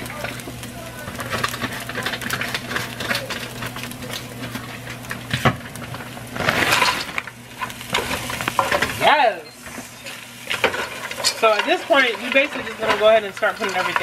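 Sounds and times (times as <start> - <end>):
chicken and onions sizzling: 0.0 - 14.0
frozen vegetables pouring into pot: 6.2 - 7.3.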